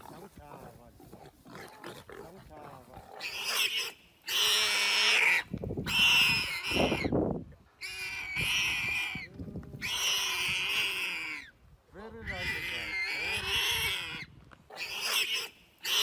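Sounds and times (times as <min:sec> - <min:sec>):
warthog squealing: 0:01.0 - 0:07.2, 0:07.8 - 0:11.5, 0:12.2 - 0:16.0.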